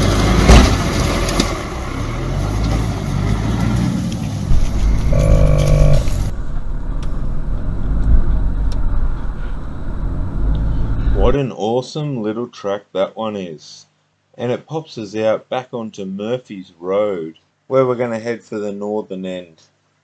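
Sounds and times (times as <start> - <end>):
vehicle engine at low revs: 0.0 - 11.4.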